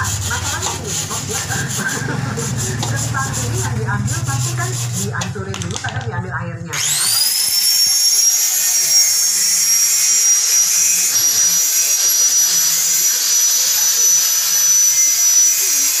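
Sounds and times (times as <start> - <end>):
power tool high-pitched whine: 6.7 - 16.0.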